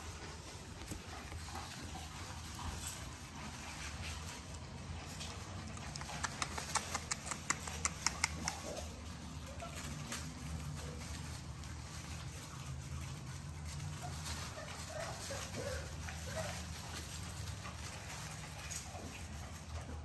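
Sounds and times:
puppies scuffling in wood shavings: 0.0s - 20.0s
rapid sharp clicks: 5.7s - 8.7s.

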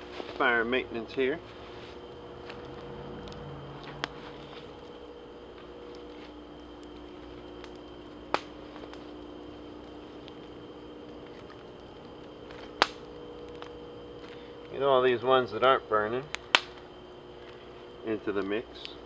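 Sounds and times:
campfire crackling: 0.0s - 19.0s
faint steady hum: 0.0s - 19.0s
sharp snaps: 7.6s - 9.1s, 9.8s - 14.4s, 16.2s - 16.8s.

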